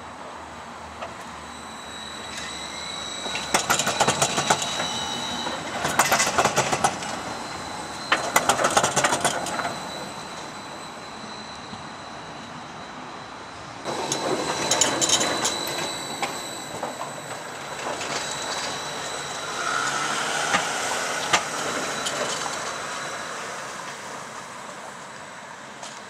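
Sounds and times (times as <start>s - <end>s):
tram wheels on rails: 0.0s - 26.0s
clicks and clatter over track: 3.3s - 4.9s, 5.8s - 7.2s, 8.1s - 9.8s.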